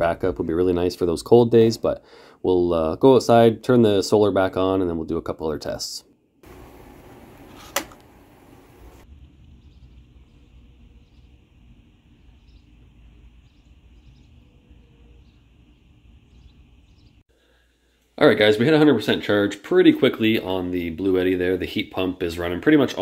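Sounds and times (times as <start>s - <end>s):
low steady rumble: 6.5s - 16.9s
faint bird chirps: 9.4s - 11.5s, 12.1s - 17.2s.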